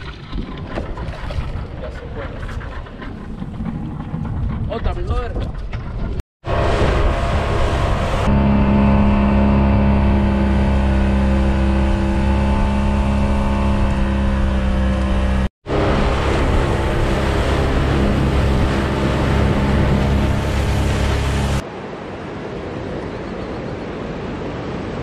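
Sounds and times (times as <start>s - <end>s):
outboard motor running: 0.0s - 4.8s, 5.6s - 21.6s
wind noise: 0.0s - 14.6s
water noise: 0.0s - 25.0s.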